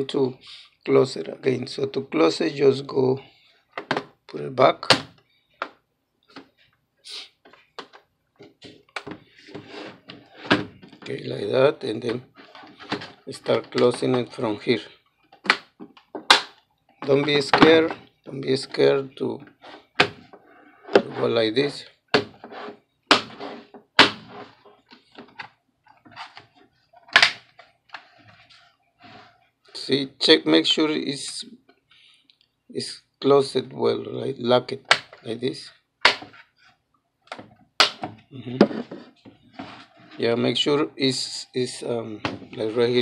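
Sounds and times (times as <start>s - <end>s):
plastic scraping: 7.5s - 14.6s, 17.0s - 21.4s, 22.2s - 29.5s.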